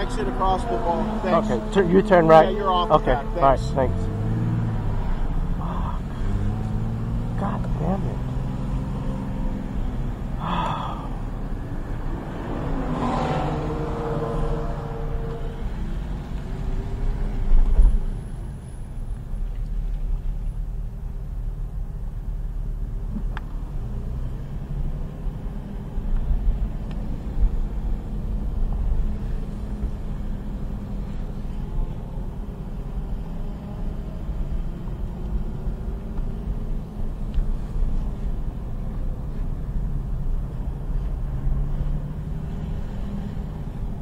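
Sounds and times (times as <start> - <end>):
car engine low rumble: 0.0 - 44.0.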